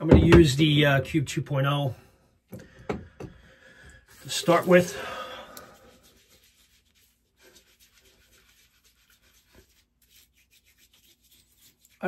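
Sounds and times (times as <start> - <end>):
cube rubbing over wet skin: 4.1 - 5.1, 5.7 - 12.0.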